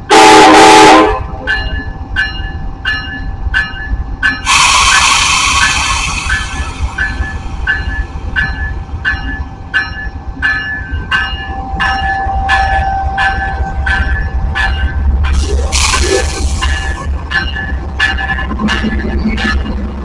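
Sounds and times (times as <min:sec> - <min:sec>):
locomotive bell ringing: 0:00.8 - 0:20.0
air hiss: 0:04.5 - 0:07.5, 0:15.7 - 0:17.0.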